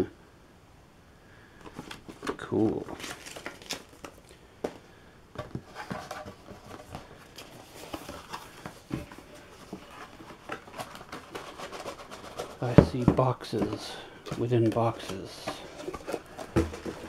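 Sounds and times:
cardboard boxes being handled: 1.6s - 4.8s, 5.4s - 17.0s
soft rubbing of cardboard: 5.6s - 17.0s.

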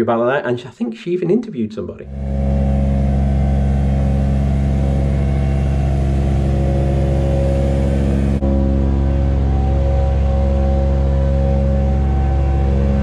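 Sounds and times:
carpet cleaning machine drone: 2.1s - 13.0s.

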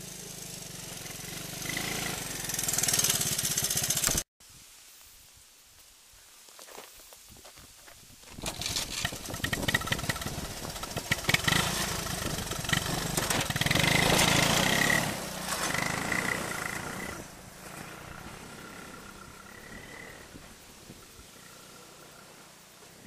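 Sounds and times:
three-wheeler engine revving: 0.0s - 4.3s, 8.4s - 23.0s
gravel crackling under tyres: 5.0s - 23.0s.

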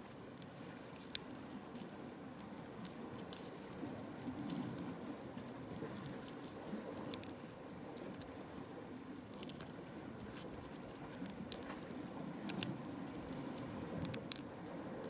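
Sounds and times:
shell crunching clicks: 0.2s - 4.8s, 9.2s - 11.8s, 12.4s - 14.4s.

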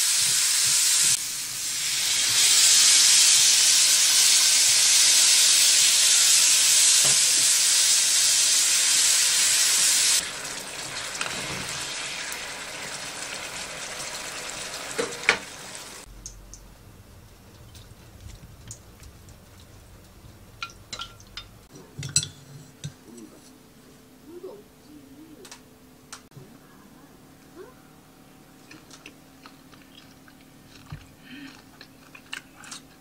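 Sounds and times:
vegetables sizzling in a pan: 0.0s - 16.1s.

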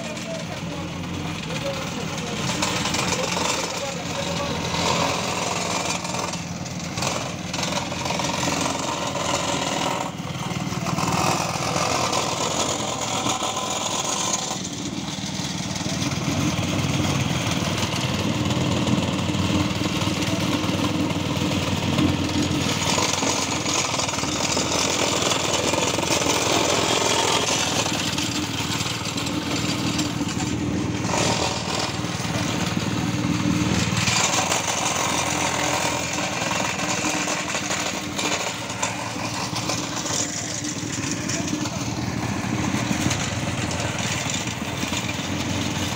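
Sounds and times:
plate compactor engine running: 0.0s - 45.9s.

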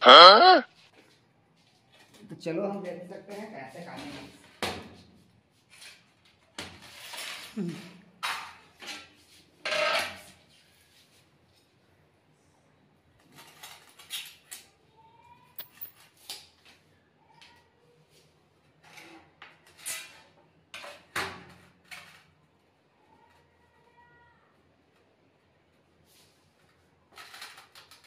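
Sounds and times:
cat meowing faintly: 14.9s - 15.6s, 17.1s - 18.1s
ceramic tiles clattering on concrete: 15.6s - 16.1s.

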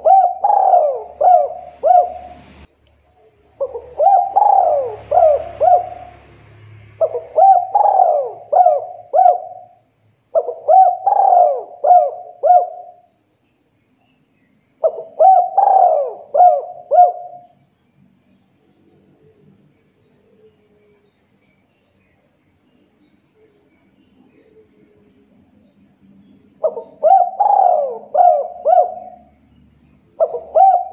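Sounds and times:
dove cooing: 0.0s - 2.7s, 3.5s - 13.1s, 14.8s - 17.6s, 26.5s - 30.9s.

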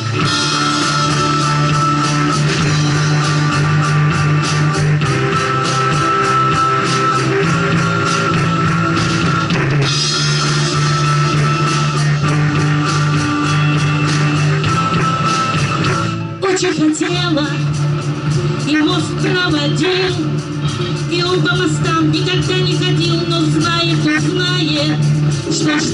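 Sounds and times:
rock band playing live: 0.0s - 25.9s
cymbal crash: 0.2s - 16.2s.

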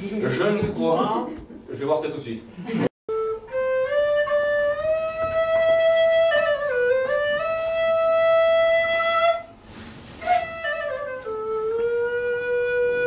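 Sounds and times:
wooden flute melody: 3.1s - 13.0s.

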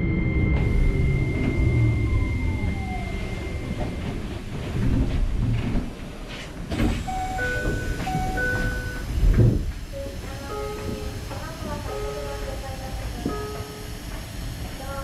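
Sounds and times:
train low rumble: 0.0s - 15.0s
two-tone chime: 7.1s - 9.0s.

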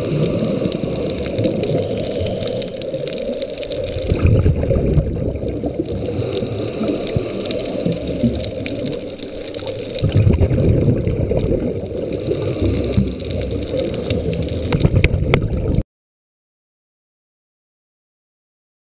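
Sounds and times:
sharp clicks from reef: 0.0s - 4.4s, 5.8s - 10.5s, 11.4s - 15.6s
underwater regulator bubbles rushing: 0.0s - 15.8s.

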